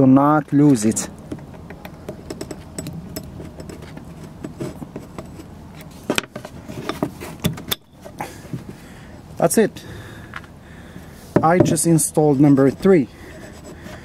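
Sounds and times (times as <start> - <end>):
metallic clicks and scrapes: 0.6 - 8.2.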